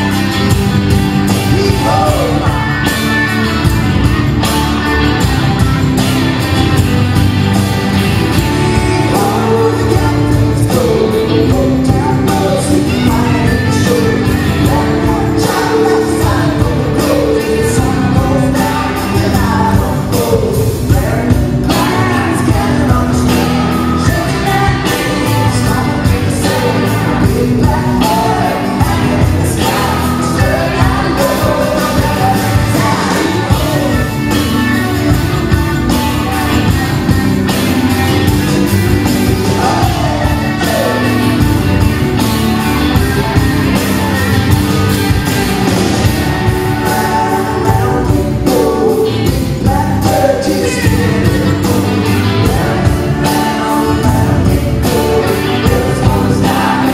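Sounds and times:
live rock band playing: 0:00.0 - 0:56.9
person singing: 0:01.2 - 0:03.8, 0:07.9 - 0:56.9.

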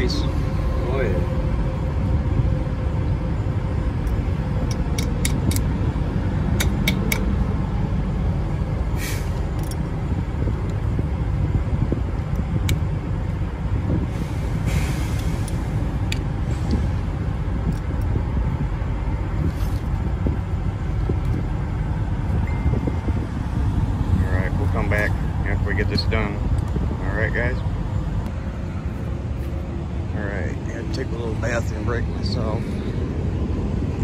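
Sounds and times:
vehicle engines rumbling: 0:00.0 - 0:34.0
metal tool clicking on nut: 0:06.6 - 0:07.3
short hisses: 0:09.0 - 0:09.4.

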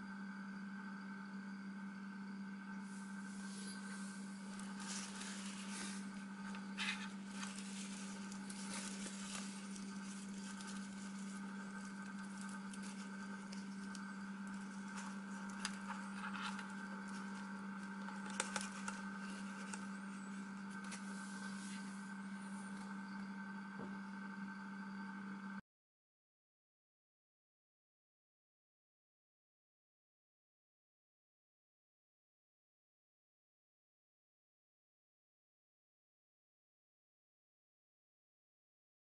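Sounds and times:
low electrical hum: 0:00.0 - 0:25.6
hands handling battery leads: 0:04.6 - 0:20.0.

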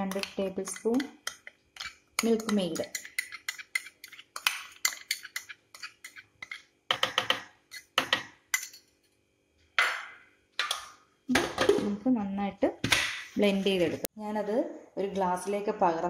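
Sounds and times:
spoon scraping glass bowl: 0:00.1 - 0:06.7, 0:07.7 - 0:08.9.

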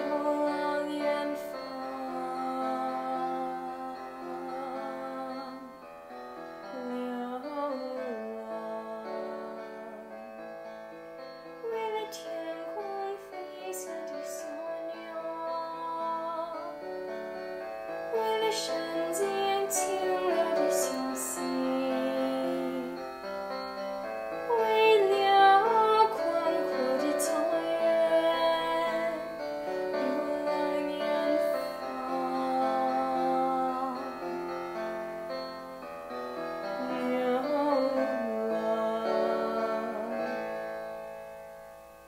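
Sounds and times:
girl singing: 0:00.0 - 0:05.8, 0:06.6 - 0:10.1, 0:11.6 - 0:17.0, 0:18.1 - 0:23.0, 0:24.5 - 0:34.5, 0:36.8 - 0:40.5
piano chords: 0:00.0 - 0:42.0.

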